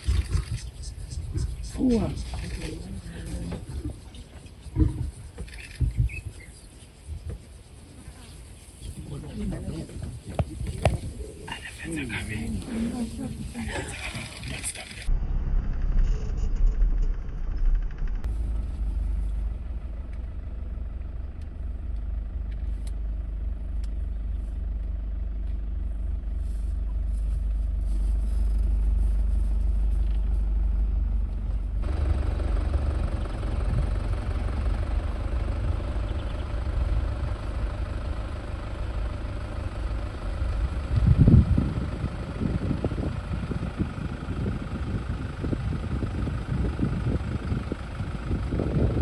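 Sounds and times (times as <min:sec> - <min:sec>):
vehicle engine rumbling: 0:00.0 - 0:49.0.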